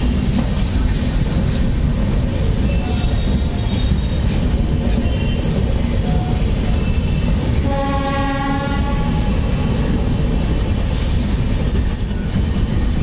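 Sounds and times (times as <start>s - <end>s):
train wheels rumbling on rail: 0.0s - 13.0s
train horn: 7.6s - 9.5s
rushing air: 9.4s - 12.0s.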